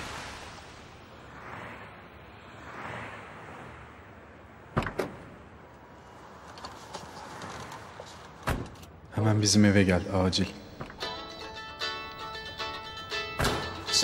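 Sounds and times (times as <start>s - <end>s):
car door clunking: 4.7s - 5.3s, 7.5s - 9.0s.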